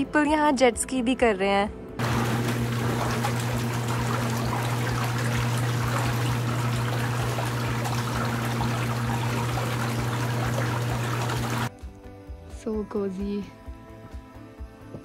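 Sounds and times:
steady low hum: 0:02.0 - 0:11.7
water bubbling and churning: 0:02.0 - 0:11.7.

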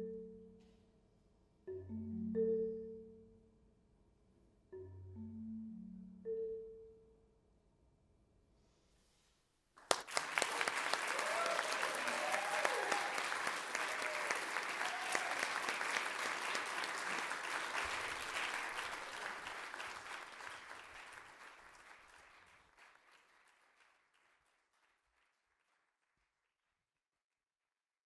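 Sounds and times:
audience applauding: 0:09.8 - 0:26.1.

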